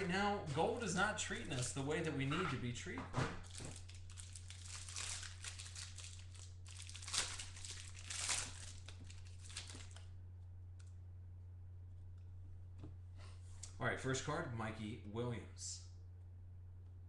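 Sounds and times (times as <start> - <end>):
plastic wrapping crinkling and tearing: 3.4 - 10.1.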